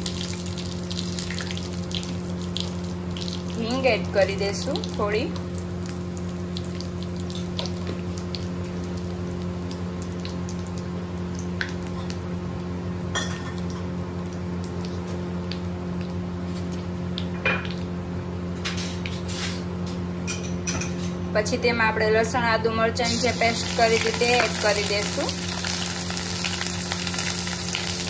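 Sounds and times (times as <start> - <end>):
spices sizzling in hot oil: 0.0 - 14.9, 23.0 - 28.0
steady low hum: 0.0 - 28.0.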